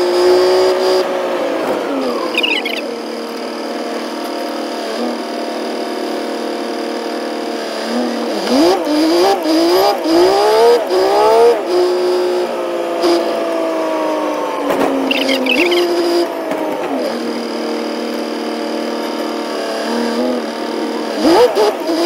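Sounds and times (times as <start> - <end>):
truck engine running: 1.6 - 6.3, 14.7 - 19.4.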